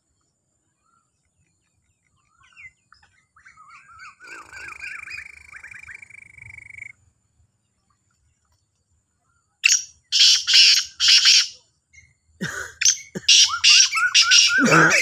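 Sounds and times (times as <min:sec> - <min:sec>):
harsh buzzy bird call: 0:03.8 - 0:07.0, 0:09.6 - 0:11.6, 0:12.5 - 0:15.0
bird whistled notes: 0:12.9 - 0:14.7.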